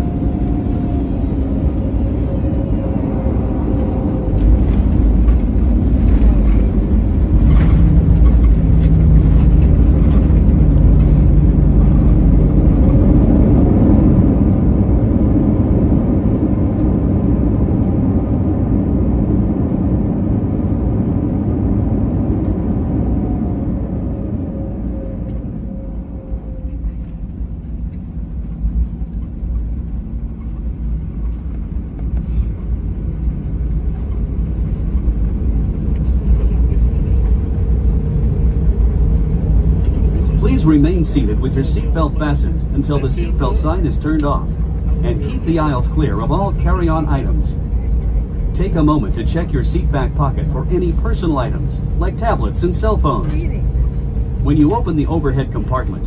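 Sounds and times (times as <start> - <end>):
low aircraft rumble: 0.0 - 56.0.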